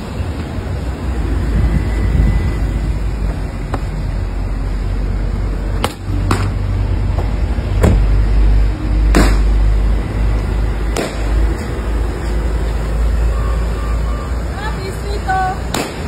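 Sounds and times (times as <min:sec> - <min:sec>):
steady low rumble: 0:00.0 - 0:16.0
car door shutting: 0:07.8 - 0:08.1.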